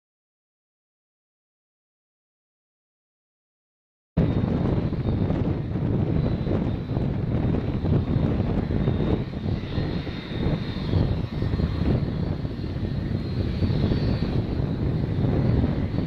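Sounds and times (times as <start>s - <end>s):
high jet engine whine: 4.2s - 16.0s
jet engines rumbling: 4.2s - 16.0s.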